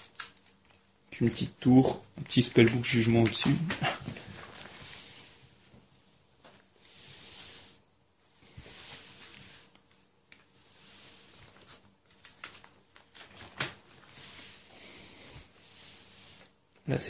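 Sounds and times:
plastic pages rustling: 0.0 - 5.1, 11.4 - 14.6.

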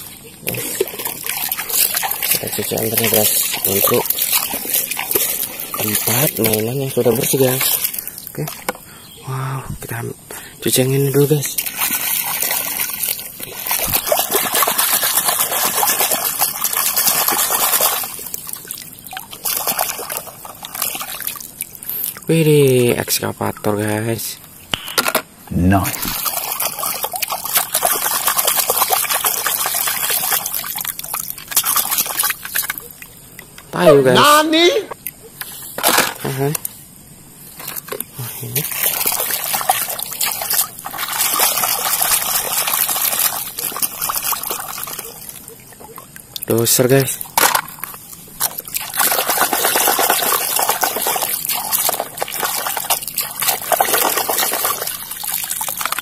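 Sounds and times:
water splashing and sloshing: 0.0 - 9.1, 9.7 - 56.0.

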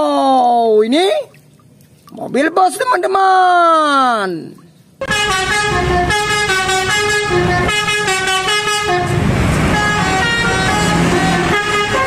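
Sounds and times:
bus road noise: 5.0 - 12.0
musical air horn tune: 5.0 - 12.0.

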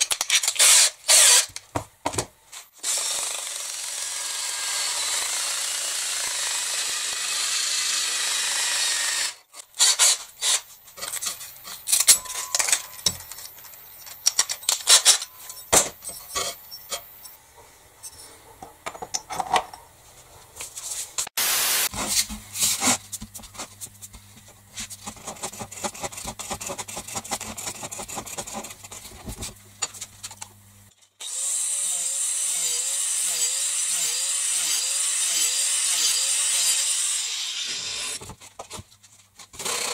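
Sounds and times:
angle grinder cutting plastic pipe: 0.0 - 1.6, 2.8 - 11.9, 31.2 - 38.3
tools clinking and knocking: 10.9 - 17.4, 18.0 - 19.9.

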